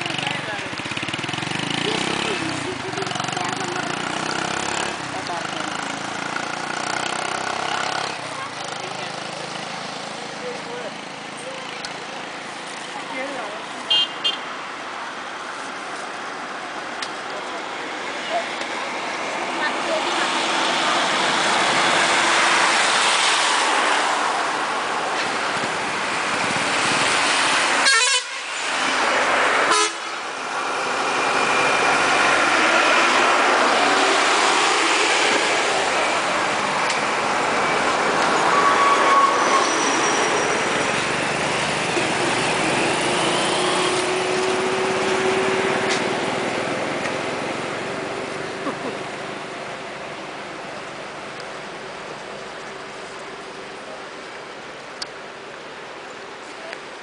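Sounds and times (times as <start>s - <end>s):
traffic passing: 0.0s - 57.0s
horns honking: 13.9s - 14.5s, 27.8s - 28.7s, 29.6s - 30.2s, 37.6s - 41.0s.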